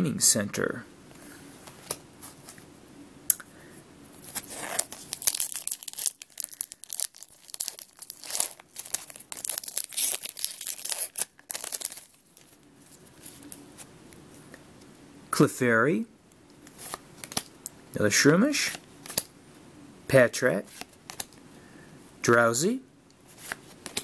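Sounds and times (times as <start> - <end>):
foil wrapper tearing and crinkling: 4.2 - 12.6.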